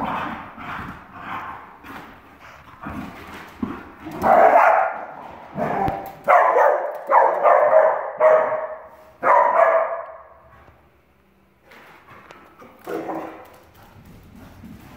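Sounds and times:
dogs barking: 0:04.1 - 0:10.4, 0:12.6 - 0:13.6.

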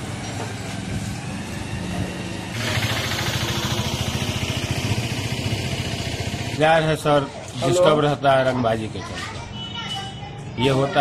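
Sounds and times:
small engine running: 0:02.5 - 0:06.9.

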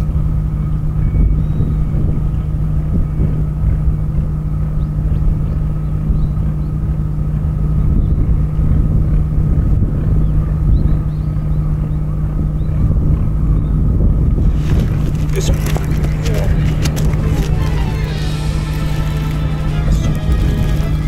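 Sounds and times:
low engine drone: 0:00.0 - 0:21.0.

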